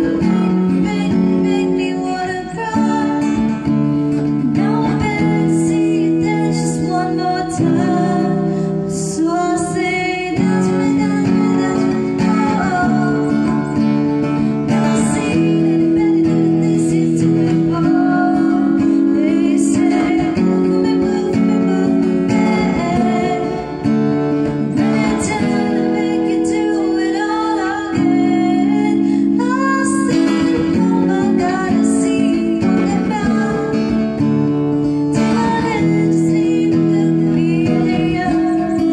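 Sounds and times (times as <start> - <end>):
acoustic guitar: 0.0 - 38.9
woman singing: 0.0 - 38.9.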